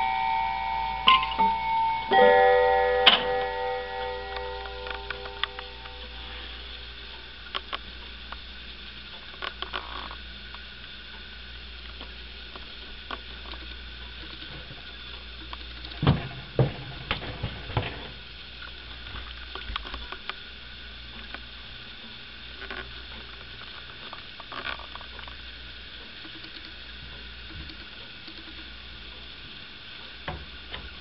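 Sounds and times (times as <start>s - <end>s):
low hum: 0.0s - 7.5s
steady hiss: 0.0s - 31.0s.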